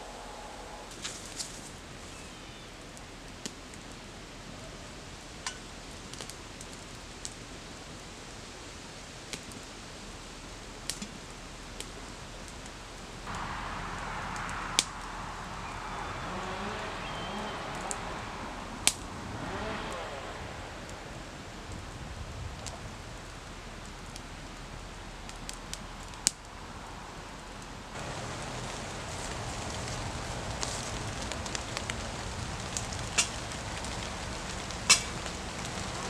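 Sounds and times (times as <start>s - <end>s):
campfire crackling: 0.0s - 36.0s
hiss of flames: 6.0s - 36.0s
sharp pops of fire: 10.8s - 22.0s, 28.0s - 36.0s.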